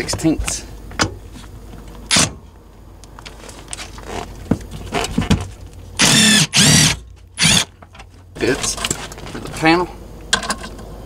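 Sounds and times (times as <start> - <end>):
cordless drill whirring: 6.0 - 7.7.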